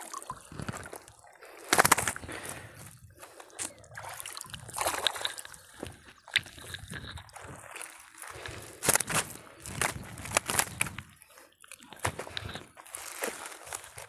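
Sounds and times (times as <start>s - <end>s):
water splashing against a boat: 0.0s - 14.0s
net being hauled in: 8.8s - 11.0s.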